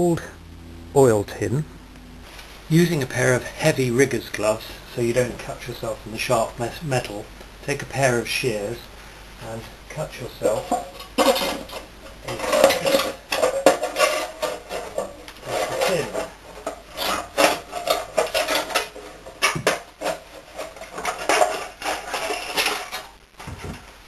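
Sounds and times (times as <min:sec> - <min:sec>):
metal scraping: 0:10.0 - 0:23.2.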